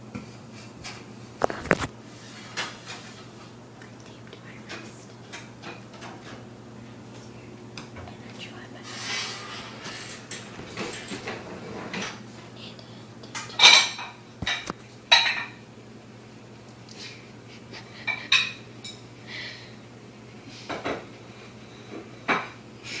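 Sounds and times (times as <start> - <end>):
dishes and cutlery clattering: 13.4 - 15.6.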